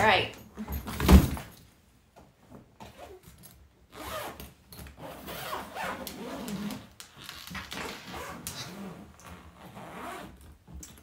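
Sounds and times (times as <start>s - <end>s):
suitcase zipper rasping: 2.9s - 10.6s.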